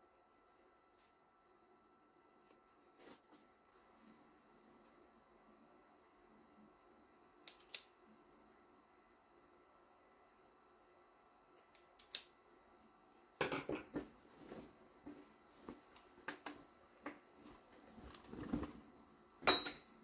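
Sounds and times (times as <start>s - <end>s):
scissor snip: 7.4s - 7.9s, 11.6s - 12.3s.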